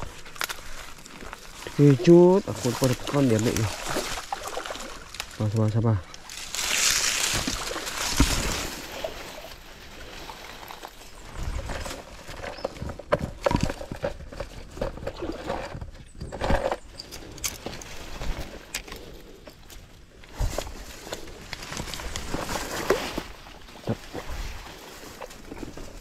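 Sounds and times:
rustling of grass and leaves: 0.0 - 26.0
water splash in pond: 2.7 - 5.3, 6.5 - 9.6.

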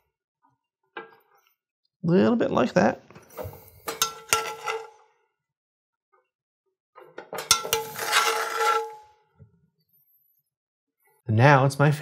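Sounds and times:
metal spoon scraping a skillet: 3.3 - 5.1, 7.3 - 9.2.

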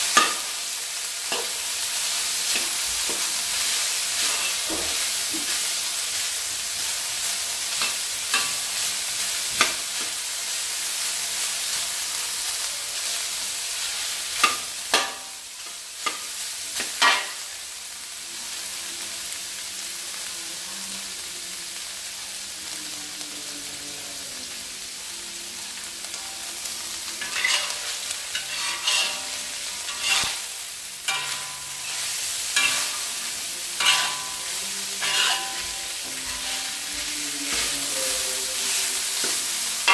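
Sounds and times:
metal spatula scraping wok: 0.0 - 6.3, 27.2 - 39.9
meat sizzling in a wok: 0.0 - 39.9.

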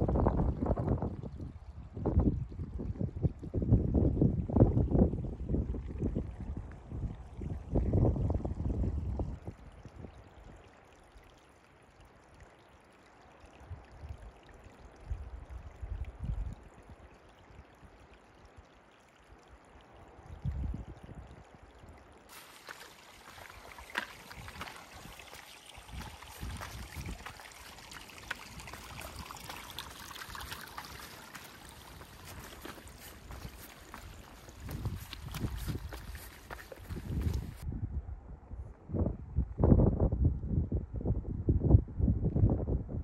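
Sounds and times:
wind gusts on microphone: 0.0 - 10.2, 20.2 - 21.5, 23.3 - 43.0
footsteps on stony trail: 22.3 - 37.6
running water rushing: 22.3 - 37.6.

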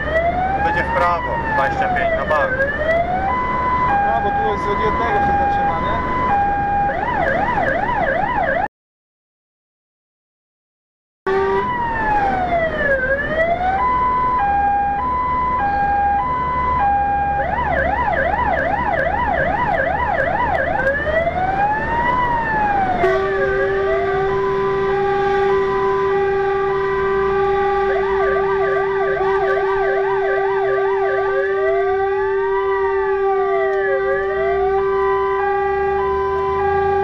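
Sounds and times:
engine rumble: 0.0 - 8.1
fire engine siren: 0.0 - 8.7, 11.3 - 37.0
steady low siren tone: 0.0 - 8.7, 11.3 - 37.0.

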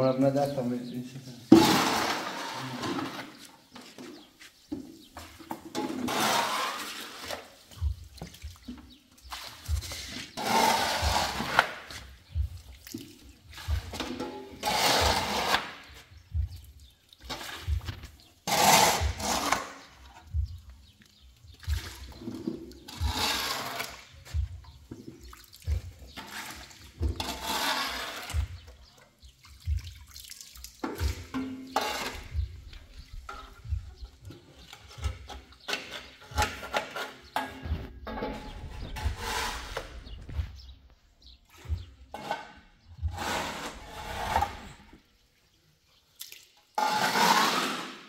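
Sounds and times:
dustpan scraping concrete: 1.5 - 7.8, 8.9 - 12.2, 13.5 - 16.2, 17.2 - 20.3, 22.0 - 24.4, 26.1 - 29.0, 31.3 - 40.8, 41.6 - 45.0, 46.8 - 48.0
water pouring into bucket: 29.3 - 32.2.

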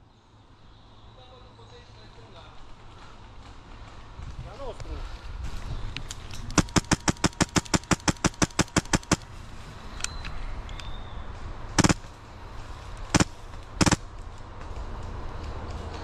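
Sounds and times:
airsoft gun shots: 6.6 - 9.2, 11.8 - 12.1, 13.1 - 14.0.

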